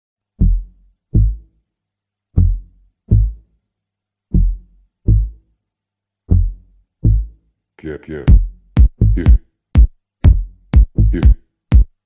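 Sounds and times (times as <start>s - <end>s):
bass drum thumps: 2.4s - 3.4s, 8.3s - 12.0s.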